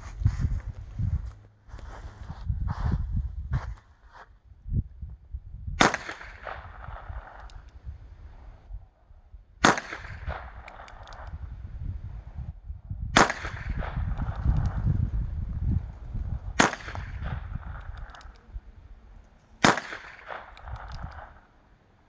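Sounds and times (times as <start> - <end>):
revolver gunshots: 5.8 - 7.5, 9.6 - 11.4, 13.2 - 14.8, 16.5 - 18.3, 19.6 - 21.6.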